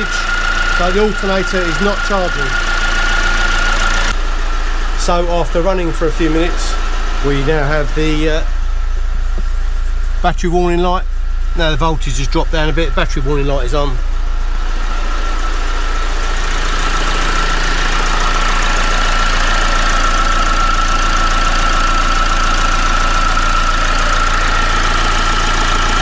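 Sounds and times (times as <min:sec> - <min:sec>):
diesel engine idling: 0:00.0 - 0:26.0
high-pitched whine: 0:00.0 - 0:26.0.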